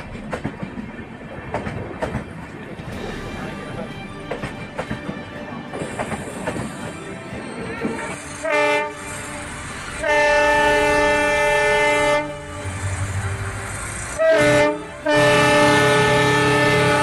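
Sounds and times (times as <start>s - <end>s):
train running noise: 0.0s - 17.0s
locomotive horn blasts: 8.0s - 13.6s, 14.2s - 17.0s.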